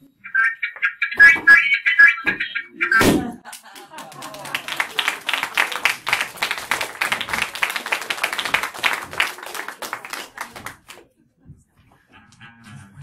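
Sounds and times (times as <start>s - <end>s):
audience applauding: 3.4s - 11.0s.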